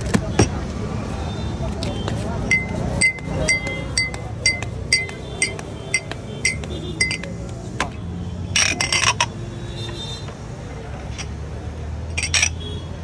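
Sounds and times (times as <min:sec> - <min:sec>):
drinking glasses clinking: 0:02.5 - 0:07.4.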